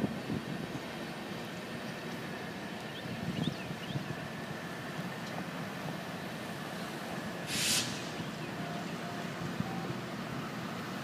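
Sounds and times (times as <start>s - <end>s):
cars rumbling over railroad crossing: 0.0s - 11.0s
short sharp hiss: 7.4s - 8.4s.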